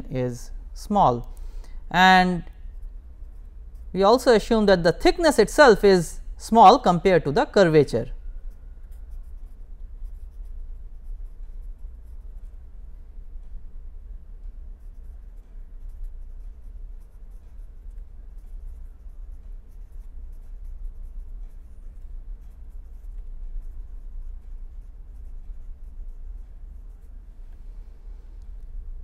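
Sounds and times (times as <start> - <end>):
low hum: 0.0 - 29.0
marker scratching on paper: 2.0 - 13.0, 14.6 - 27.6.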